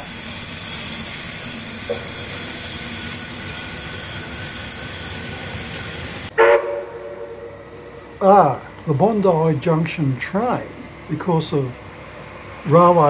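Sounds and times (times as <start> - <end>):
electric train rumbling: 0.0 - 13.0
high whining train tones: 0.0 - 13.0
short pitched sound: 6.3 - 8.4.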